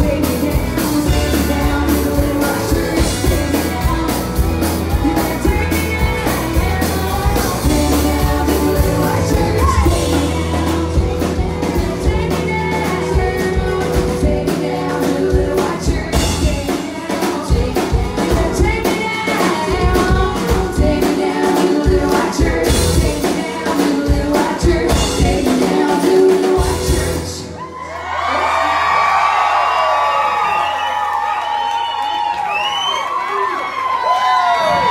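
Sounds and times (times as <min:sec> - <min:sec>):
live rock band playing: 0:00.0 - 0:27.8
person singing lead vocal: 0:00.0 - 0:27.8
crowd cheering and whooping: 0:27.4 - 0:34.9.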